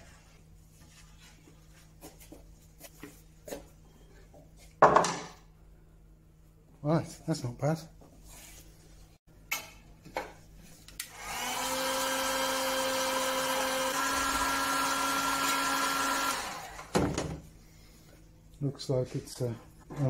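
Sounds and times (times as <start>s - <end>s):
heat gun blowing air: 11.0s - 17.0s.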